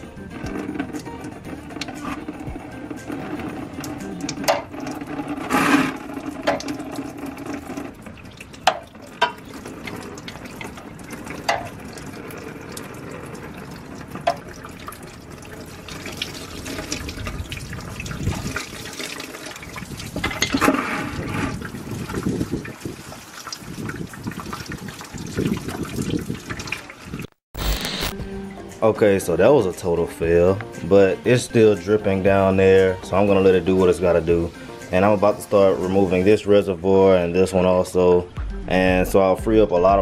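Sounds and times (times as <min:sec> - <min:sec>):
coolant pouring and splashing: 0:00.4 - 0:27.3.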